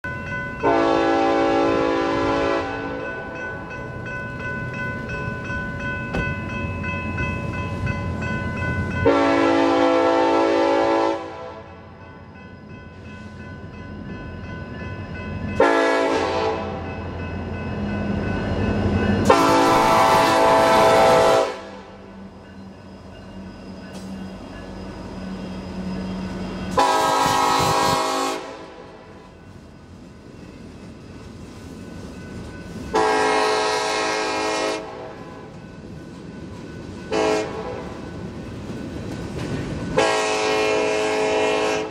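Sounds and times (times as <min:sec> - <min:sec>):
locomotive air horn blasts: 0:00.6 - 0:03.0, 0:09.0 - 0:11.8, 0:15.6 - 0:16.8, 0:19.2 - 0:22.0, 0:26.7 - 0:29.1, 0:32.9 - 0:35.3, 0:37.1 - 0:37.8, 0:40.0 - 0:41.9.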